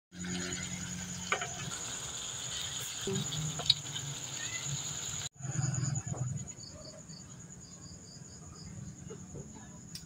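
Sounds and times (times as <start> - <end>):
sauce bubbling in pan: 0.2 - 5.3.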